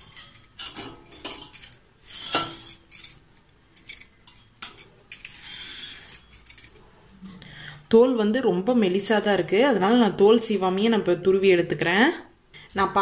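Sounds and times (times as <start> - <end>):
metallic clink: 0.0 - 6.8.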